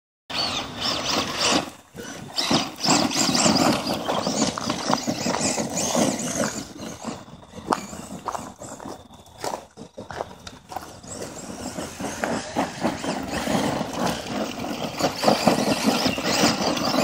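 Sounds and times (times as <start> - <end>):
electric motor whine: 0.3 - 17.0
tyres crunching on gravel: 0.4 - 17.0.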